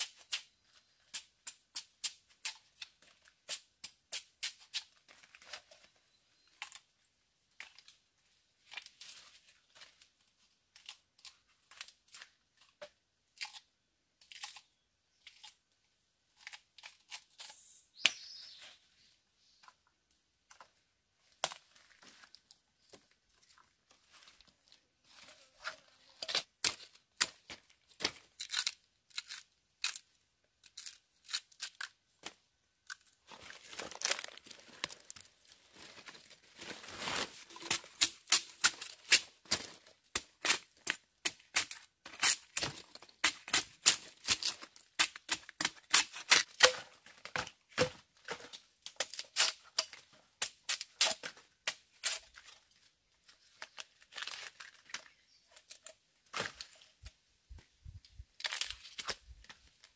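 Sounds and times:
crackling and tearing: 26.0s - 46.8s, 53.4s - 56.8s, 58.4s - 59.9s.

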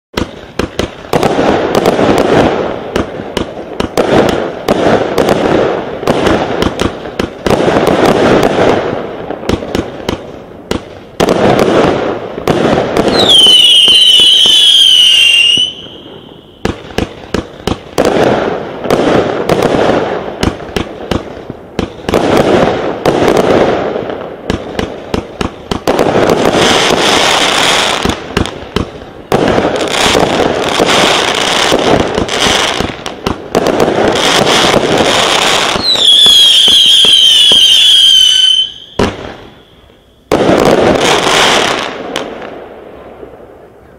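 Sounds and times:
fireworks bangs and crackle: 0.1s - 43.9s
wavering whistle falling in pitch: 13.2s - 16.4s.

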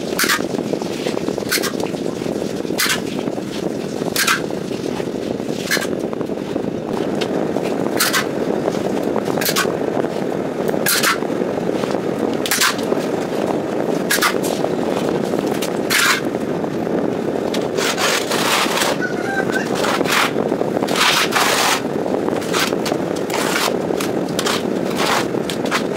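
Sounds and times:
steady background noise: 0.0s - 25.9s
trowel scraping plaster on wall: 0.1s - 1.8s, 4.2s - 5.0s, 5.6s - 5.9s, 8.0s - 8.3s, 14.1s - 14.4s, 15.9s - 16.2s, 17.8s - 19.0s, 19.6s - 21.8s, 22.4s - 23.8s, 24.4s - 25.9s.

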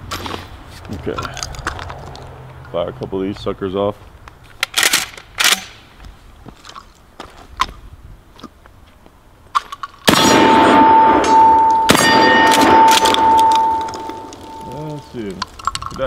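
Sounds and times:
shotgun blasts: 10.1s - 14.6s
steel target ringing: 10.1s - 15.4s.

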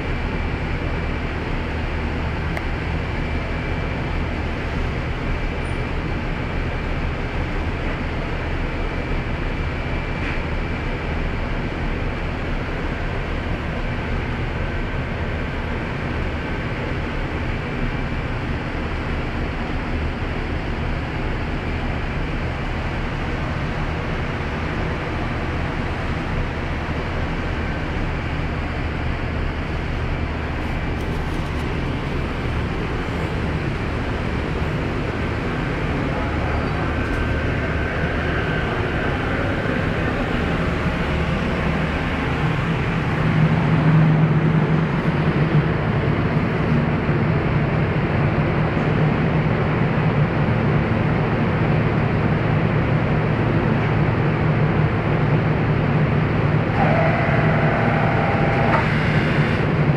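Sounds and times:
ship engines droning: 0.0s - 59.9s
steady rushing noise: 13.1s - 59.9s.

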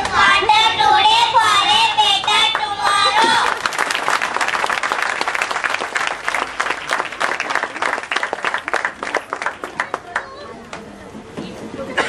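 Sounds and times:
crowd applauding: 2.2s - 10.5s.

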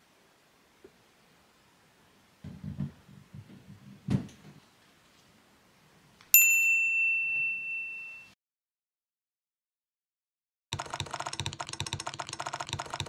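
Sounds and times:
bright bell ding: 6.4s - 8.4s.

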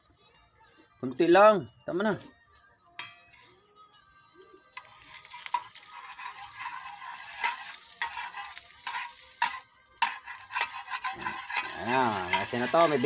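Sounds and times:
egg sizzling in hot oil: 3.3s - 13.0s.

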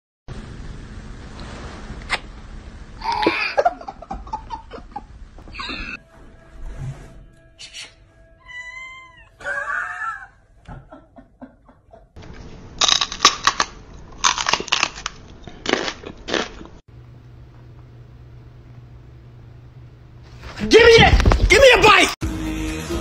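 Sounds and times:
cat meowing: 8.4s - 10.3s
steady low hum: 10.5s - 20.5s.

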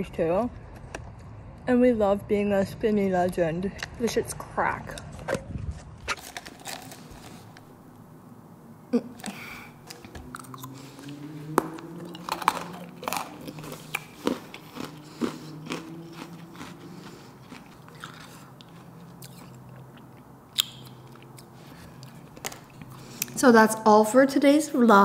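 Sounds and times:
chewing and crunching ice cream: 6.0s - 8.1s, 9.1s - 23.4s.

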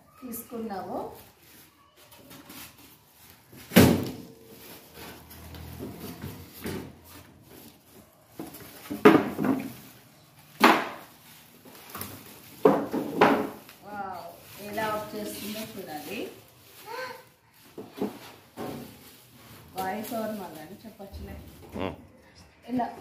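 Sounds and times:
plastic wrap crinkling: 0.1s - 21.7s
polystyrene blocks knocking: 8.4s - 13.8s.

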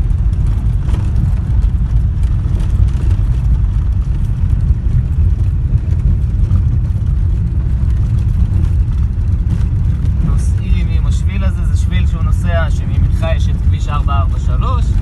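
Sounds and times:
car engine and tyres rumbling: 0.0s - 15.0s.

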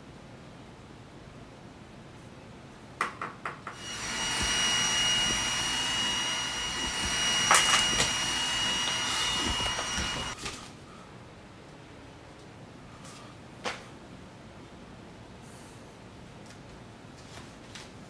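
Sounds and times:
robot vacuum whirring: 3.8s - 10.4s.

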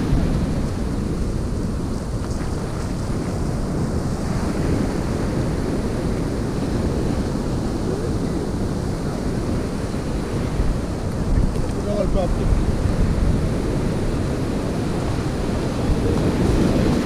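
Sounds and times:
ocean surf washing in: 0.0s - 17.0s
wind buffeting microphone: 0.0s - 17.0s.

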